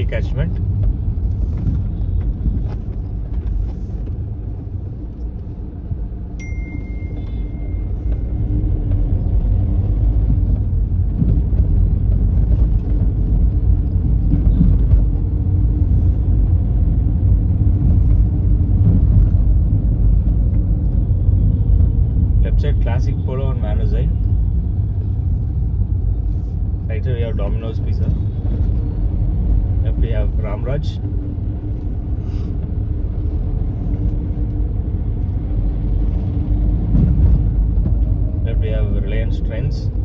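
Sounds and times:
car cabin road rumble: 0:00.0 - 0:40.0
thin high beep: 0:06.4 - 0:07.9.

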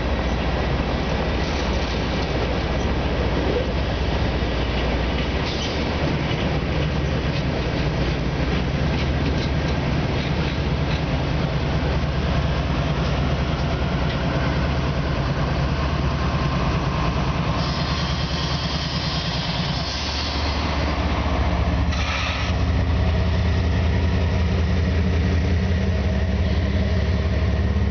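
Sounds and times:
diesel locomotive engine droning: 0:00.0 - 0:27.9
brief hiss: 0:21.9 - 0:22.6.

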